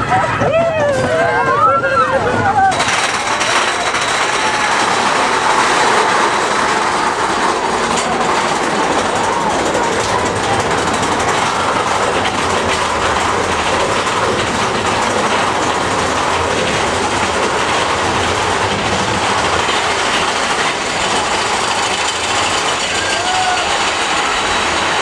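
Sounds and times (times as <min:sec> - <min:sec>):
roller coaster rattle and rumble: 0:00.0 - 0:25.0.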